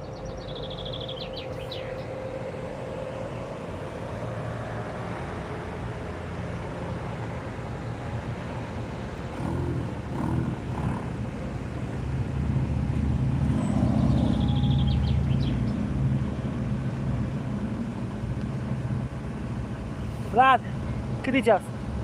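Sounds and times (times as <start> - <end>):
car engine passing: 3.8 - 21.2.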